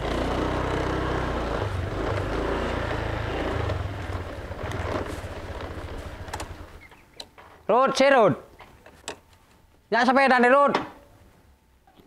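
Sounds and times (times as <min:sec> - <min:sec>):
scooter engine running: 0:00.0 - 0:07.0.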